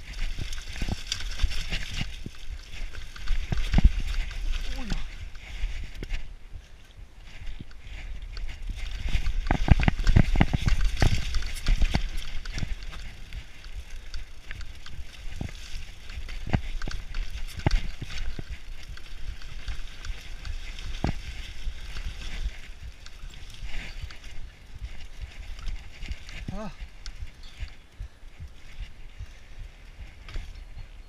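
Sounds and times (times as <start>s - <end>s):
bike clattering over rocks: 0.0s - 5.2s, 8.4s - 27.3s
tyres and wind rumble: 0.0s - 31.0s.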